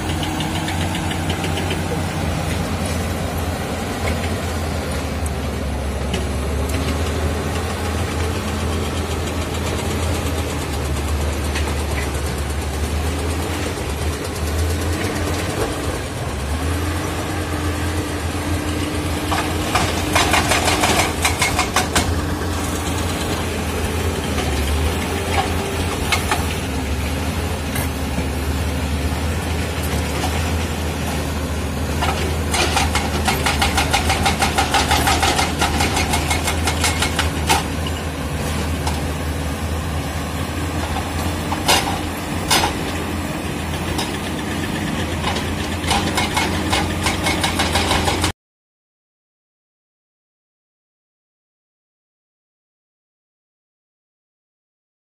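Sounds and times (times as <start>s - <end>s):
steel tracks clanking over rock: 0.0s - 4.7s, 18.2s - 48.3s
bulldozer diesel engine under load: 0.0s - 48.4s.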